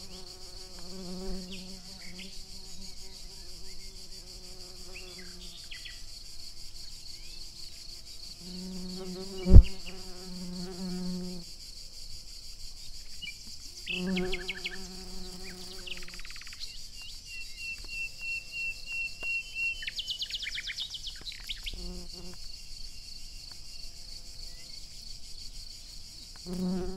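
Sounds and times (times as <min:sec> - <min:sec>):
flying insect wings buzzing: 0:00.0 - 0:06.2, 0:07.6 - 0:11.5, 0:13.8 - 0:16.4, 0:21.6 - 0:22.6, 0:26.3 - 0:26.9
insects chirring in grass: 0:00.0 - 0:26.9.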